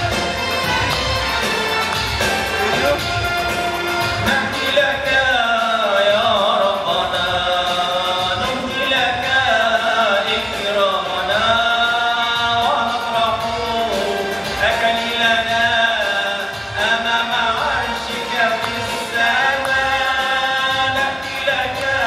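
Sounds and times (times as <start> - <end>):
man chanting a hymn into microphone: 4.2 - 22.0.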